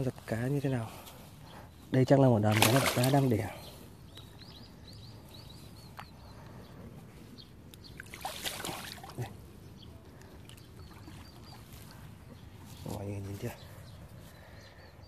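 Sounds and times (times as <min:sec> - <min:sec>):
faint bird chirps: 0:00.0 - 0:15.0
splash at water surface: 0:08.1 - 0:09.2.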